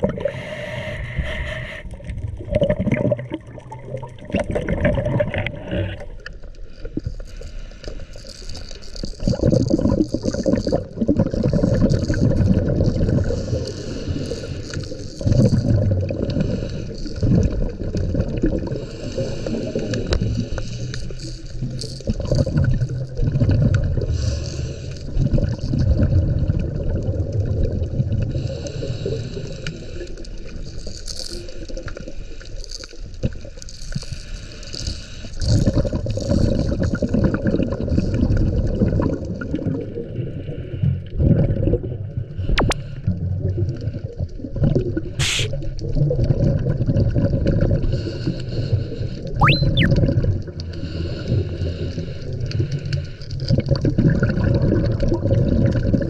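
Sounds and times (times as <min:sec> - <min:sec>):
underwater bubbles gurgling: 0:00.0 - 0:56.0
short rising squeak: 0:49.4 - 0:50.0.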